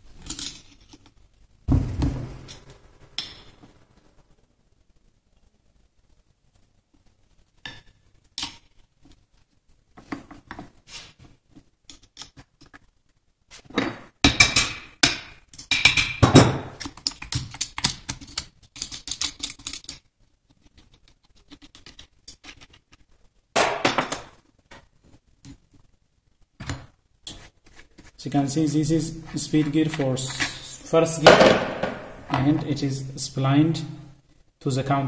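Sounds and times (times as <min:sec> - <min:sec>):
metal parts clinking and scraping: 0:00.2 - 0:01.1.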